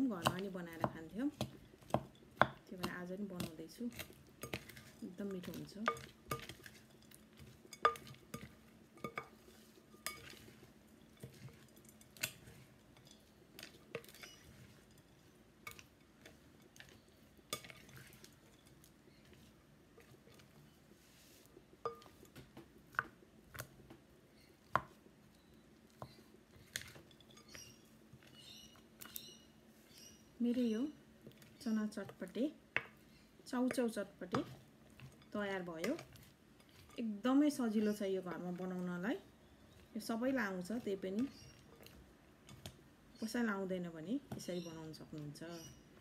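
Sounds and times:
wooden spoon knocking glass bowl: 0:21.9 - 0:22.2.

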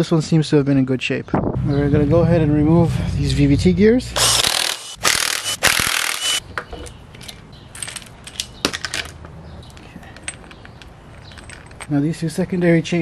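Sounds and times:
impact wrench hammering: 0:04.2 - 0:06.4
light metallic clicks and clinks: 0:09.6 - 0:11.9.

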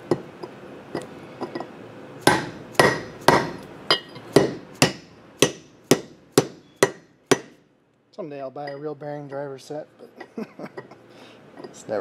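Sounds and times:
hammer striking steel: 0:02.2 - 0:07.6.

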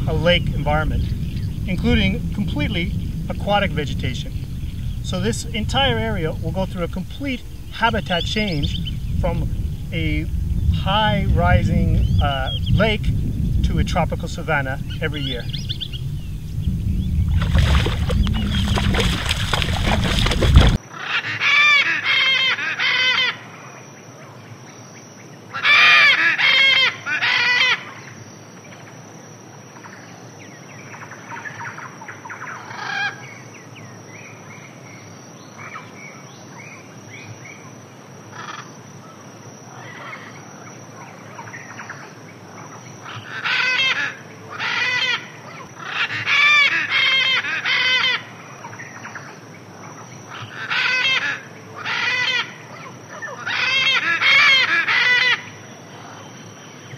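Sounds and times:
faint bird chirps: 0:00.0 - 0:13.6, 0:14.6 - 0:20.7
birds calling repeated notes: 0:00.0 - 0:20.8.

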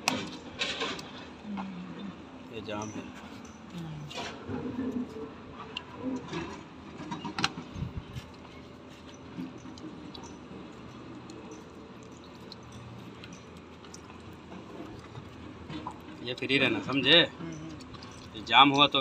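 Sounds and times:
fluid trickling: 0:04.5 - 0:19.0.

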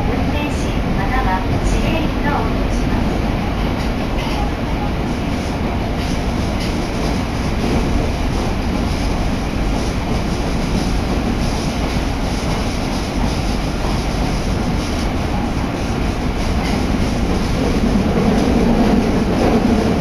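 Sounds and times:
train wheels on rail: 0:00.0 - 0:20.0.

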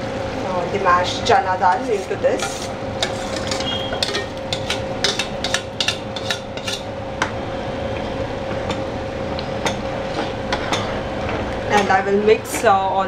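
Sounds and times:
faint hum: 0:00.0 - 0:13.0
ladle stirring thick food: 0:01.7 - 0:06.9
utensils knocking on metal pot: 0:02.4 - 0:06.8.

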